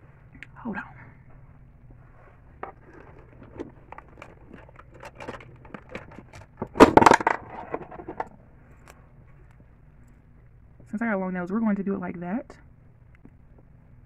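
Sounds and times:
crinkling rustle: 2.6s - 8.3s.

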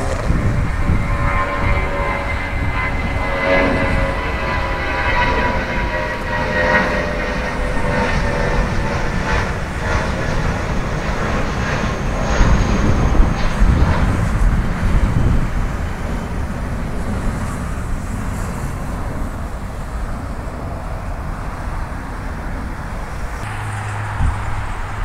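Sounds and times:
jet engines rumbling: 0.0s - 25.0s.

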